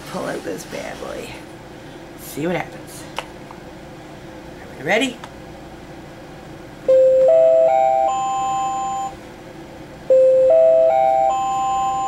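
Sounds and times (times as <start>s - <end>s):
electronic door chime: 6.9s - 9.2s, 10.1s - 12.0s.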